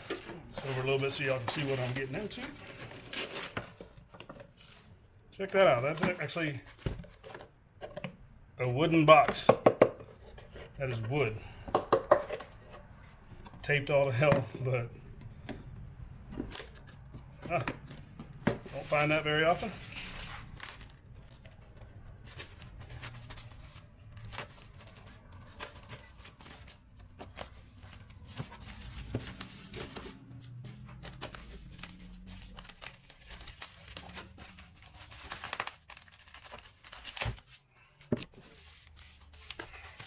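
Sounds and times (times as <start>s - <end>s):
plastic wrapping crinkling: 18.7s - 37.6s.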